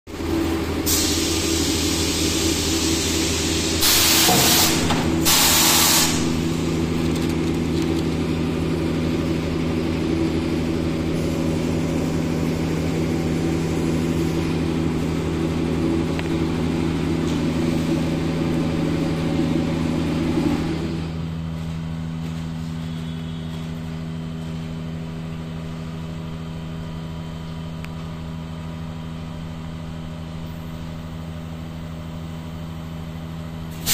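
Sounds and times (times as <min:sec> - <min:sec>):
machine humming: 0:00.1 - 0:27.0
air hiss bursts: 0:00.9 - 0:06.5.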